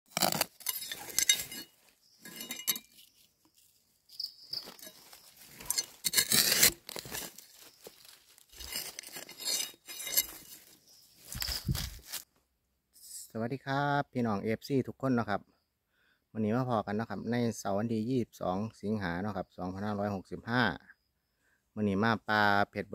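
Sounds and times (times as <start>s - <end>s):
leaves and soil rustling: 0.1s - 12.3s.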